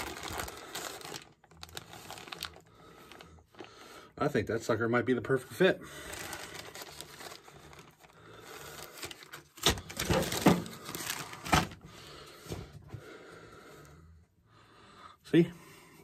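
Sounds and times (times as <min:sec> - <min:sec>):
plastic bag crinkling: 0:00.0 - 0:03.8, 0:05.9 - 0:11.8.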